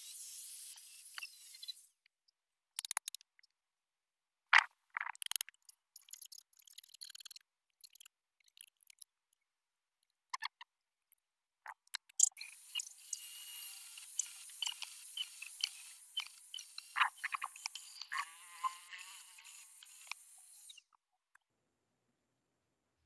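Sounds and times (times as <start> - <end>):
angle grinder: 12.5 - 20.8.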